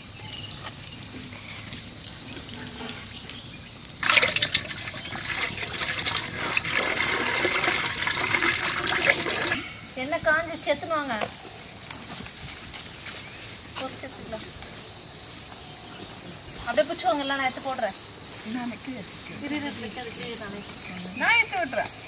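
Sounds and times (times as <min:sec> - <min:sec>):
oil pouring with crackly splash: 0:03.8 - 0:09.9.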